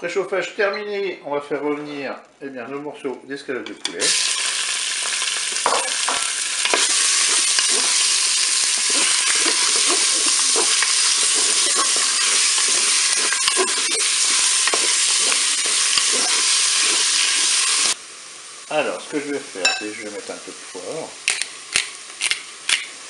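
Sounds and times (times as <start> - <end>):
chicken sizzling in hot oil: 3.9 - 23.0
wooden spoon scraping a bowl: 8.8 - 17.5.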